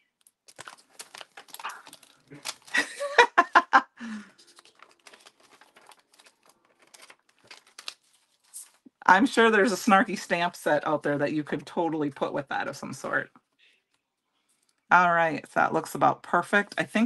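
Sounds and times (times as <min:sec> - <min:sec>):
plastic sheets crinkling: 0:00.0 - 0:10.9.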